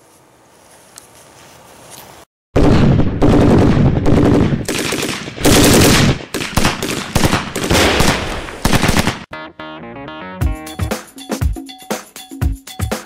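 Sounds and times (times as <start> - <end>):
machine gun fire: 2.6 - 9.3.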